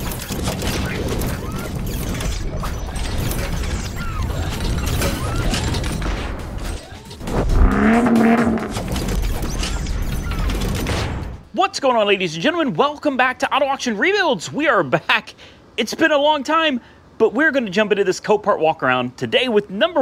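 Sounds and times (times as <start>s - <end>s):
low rumble: 7.2s - 9.1s.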